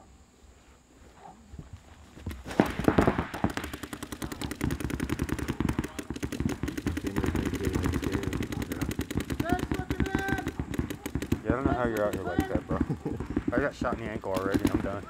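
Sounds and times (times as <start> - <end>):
paintball markers firing rapidly: 2.4 - 15.0.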